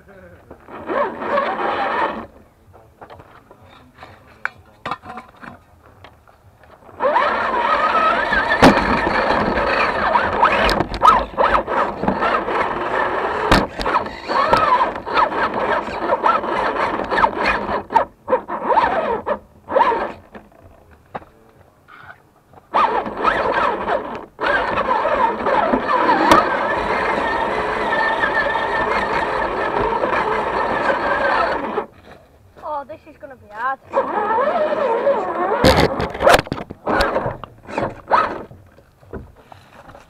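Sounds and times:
electric motor and gears whining: 0:00.3 - 0:04.0, 0:05.0 - 0:40.0
tyres scraping and knocking: 0:00.4 - 0:18.1.

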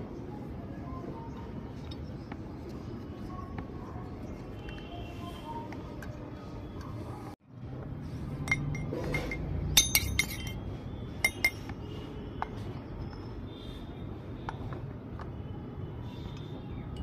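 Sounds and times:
toy metal pans clinking: 0:08.5 - 0:11.7.

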